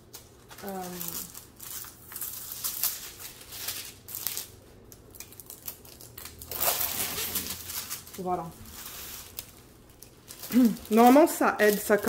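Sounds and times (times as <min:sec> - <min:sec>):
plastic film rubbing and crinkling: 0:00.1 - 0:12.0.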